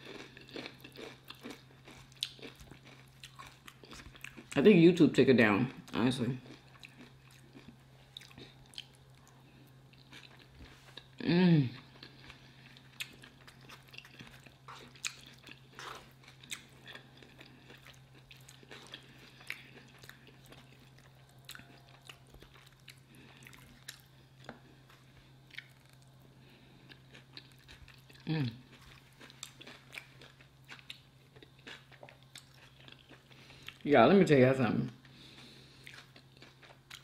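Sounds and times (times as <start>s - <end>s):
close chewing and mouth sounds: 0.0s - 5.0s, 5.6s - 33.9s, 34.8s - 37.0s
person humming: 11.2s - 11.8s, 28.2s - 28.6s.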